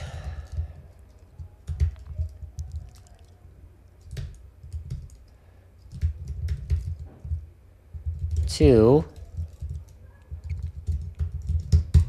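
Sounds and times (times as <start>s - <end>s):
computer keyboard typing: 0.1s - 3.4s, 4.0s - 12.0s.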